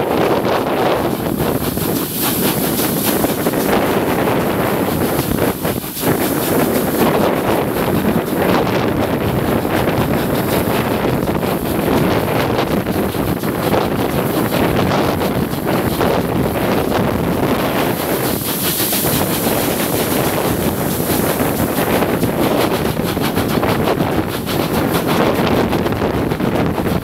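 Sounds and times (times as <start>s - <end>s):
train running noise: 0.0s - 27.0s
wind buffeting microphone: 0.0s - 27.0s.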